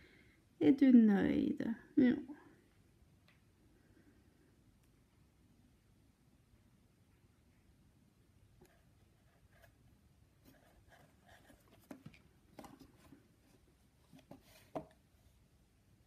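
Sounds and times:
cat rummaging in cardboard box: 10.4 - 15.0.

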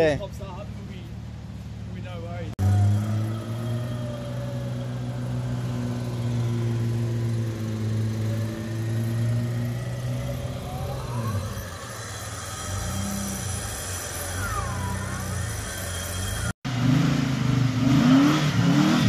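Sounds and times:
engine humming: 0.0 - 19.0
winch whine: 2.6 - 16.6.

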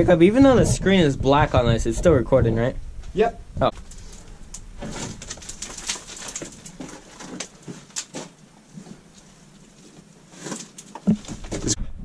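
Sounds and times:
shoes and hands scraping rock: 4.8 - 11.8.

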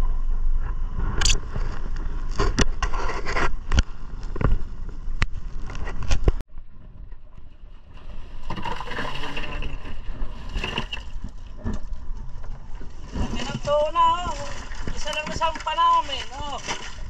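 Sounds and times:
wind and water rushing: 7.9 - 17.0.

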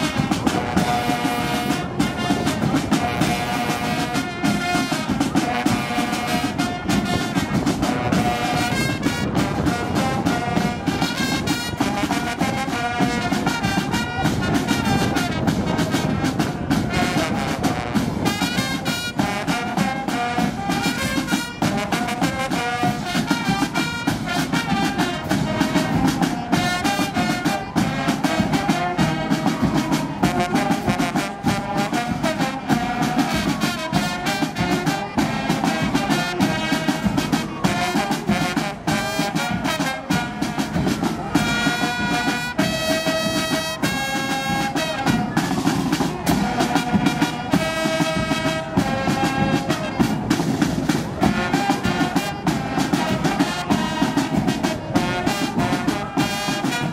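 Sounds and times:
brass band music: 0.0 - 56.9.

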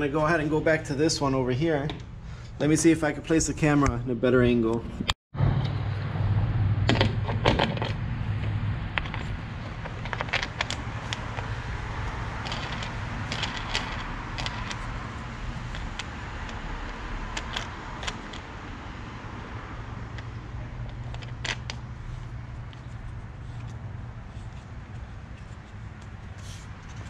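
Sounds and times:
dent puller clicks and rattles: 8.9 - 18.6.

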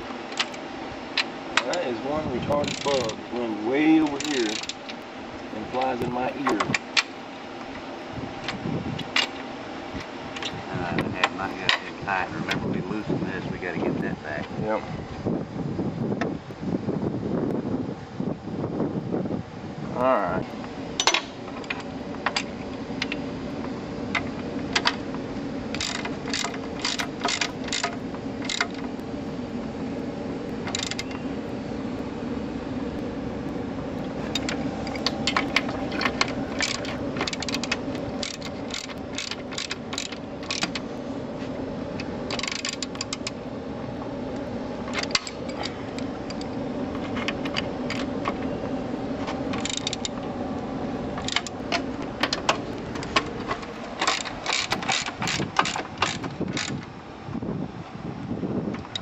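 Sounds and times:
steady low hum: 0.0 - 59.0
socket ratchet wrenches clicking: 2.5 - 3.2, 4.1 - 4.8, 25.7 - 28.9, 30.6 - 31.2, 34.3 - 40.8, 42.3 - 43.4, 49.5 - 50.2, 51.2 - 56.8.

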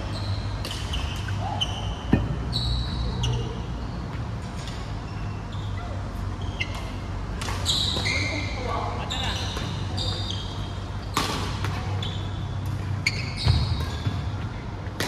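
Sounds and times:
shoes squeaking on wooden court: 0.0 - 15.0
racket hitting shuttlecock: 0.6 - 1.4, 11.1 - 11.8.

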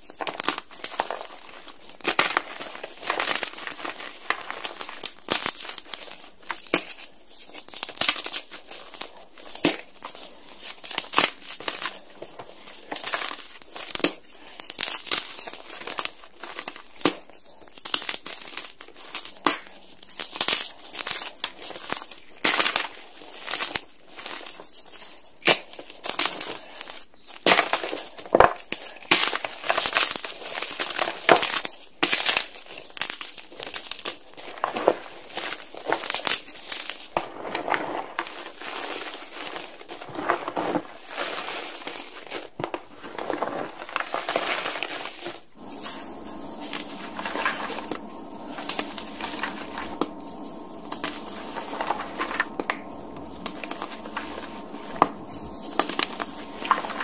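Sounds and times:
chalk crunching by hand: 27.6 - 57.0.

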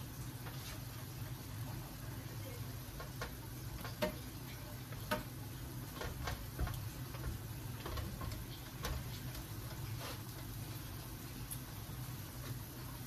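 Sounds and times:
wooden spoon scraping frying pan: 0.4 - 1.1, 5.9 - 10.8.

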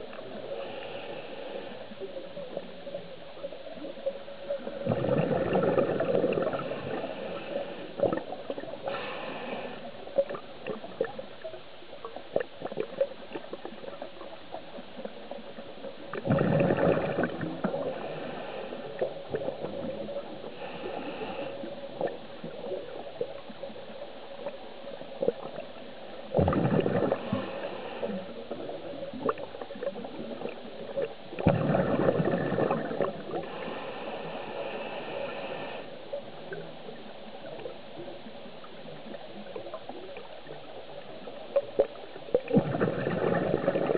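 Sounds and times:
faint clicks and crackles: 0.0 - 43.9
hissing regulator inhalations: 0.4 - 2.1, 8.8 - 10.0, 33.3 - 36.0
underwater bubbling exhalations: 4.6 - 7.3, 8.0 - 9.2, 16.1 - 18.4, 26.3 - 33.5, 41.6 - 43.9.

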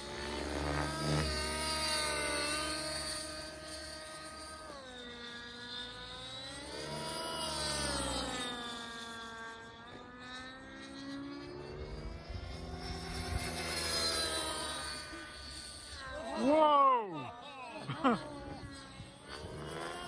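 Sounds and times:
model helicopter whine: 0.0 - 20.0.

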